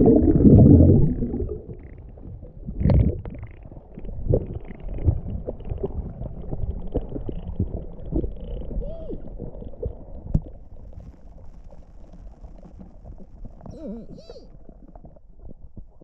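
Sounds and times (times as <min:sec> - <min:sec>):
bubbles popping and knocks: 0:00.0 - 0:08.7
muffled underwater water rumble: 0:00.0 - 0:16.0.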